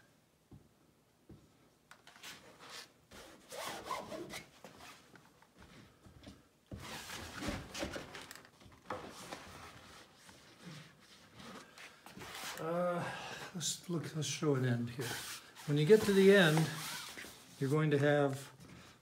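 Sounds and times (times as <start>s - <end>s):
fabric rustling and crinkling: 15.2s - 17.6s.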